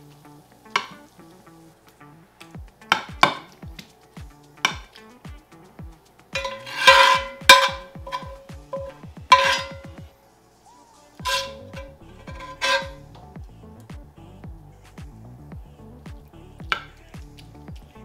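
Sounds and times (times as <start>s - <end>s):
metal spatula scraping pan: 6.4s - 9.9s, 11.3s - 13.0s.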